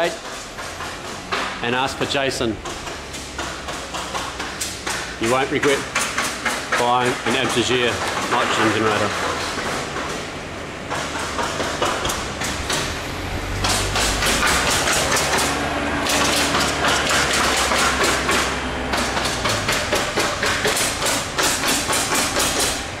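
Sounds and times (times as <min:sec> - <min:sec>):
steady machine noise: 0:00.0 - 0:23.0
low machine hum: 0:07.1 - 0:23.0.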